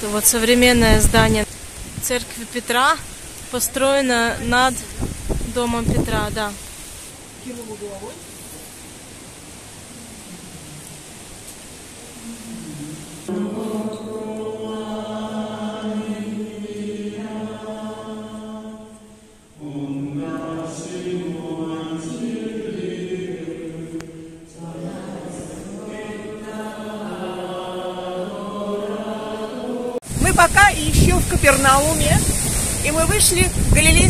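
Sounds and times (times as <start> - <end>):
congregation singing a chant: 12.2 - 30.1.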